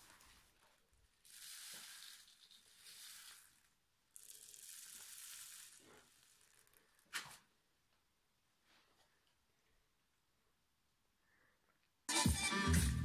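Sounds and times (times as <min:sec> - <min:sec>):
foam beads pouring rustling: 0:00.0 - 0:07.1.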